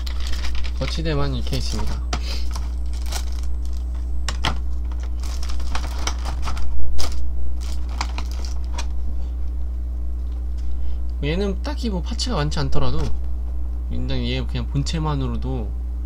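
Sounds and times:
plastic packaging clicks and crinkles: 0:00.0 - 0:09.0
low steady hum: 0:00.0 - 0:16.0.

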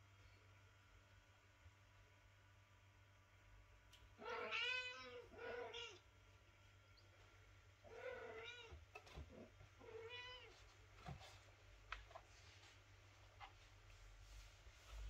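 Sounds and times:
cat meowing: 0:04.2 - 0:06.0, 0:07.9 - 0:08.8, 0:09.8 - 0:10.5.

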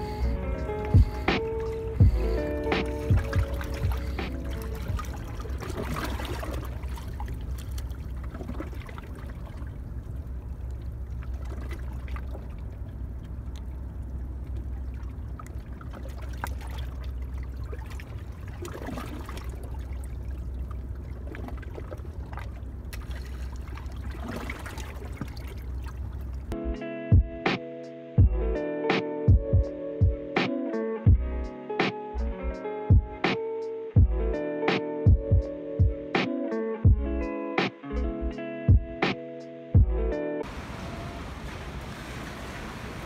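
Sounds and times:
steady low rumble: 0:00.0 - 0:26.6
water lapping on rocks: 0:00.7 - 0:26.6, 0:40.4 - 0:43.0.

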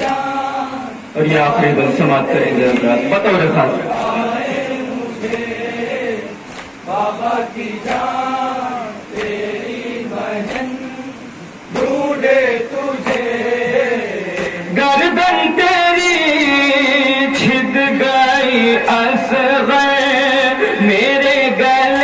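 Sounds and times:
man chanting a lament: 0:00.0 - 0:04.8, 0:12.2 - 0:22.0.

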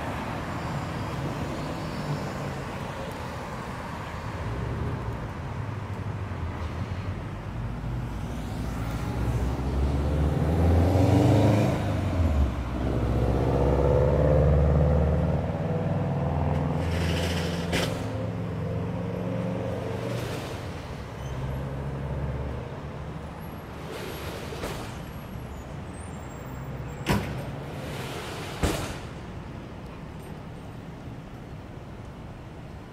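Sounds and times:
car passing and accelerating: 0:07.5 - 0:23.0.

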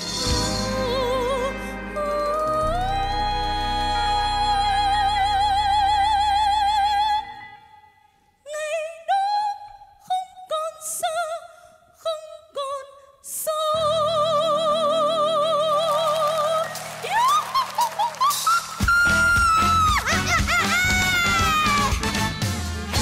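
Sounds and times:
musical accompaniment: 0:00.0 - 0:06.6, 0:13.8 - 0:23.0
woman singing pop ballad: 0:00.0 - 0:07.5, 0:08.5 - 0:22.0.

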